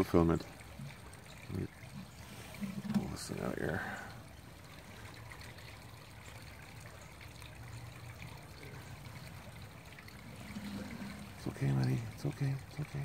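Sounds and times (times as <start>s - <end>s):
low hum: 9.9s - 12.3s.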